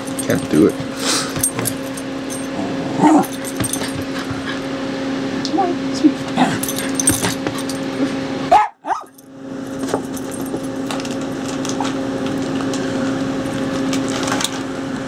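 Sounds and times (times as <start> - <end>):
steady low hum: 0.0 - 14.3
dog barking: 3.0 - 3.4, 8.5 - 9.2.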